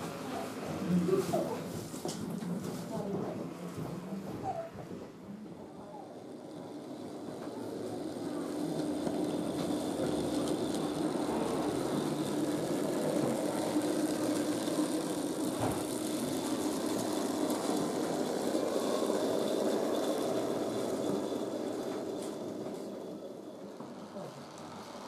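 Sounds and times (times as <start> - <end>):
model train motor hum: 5.5 - 25.0
wheel rumble: 5.6 - 25.0.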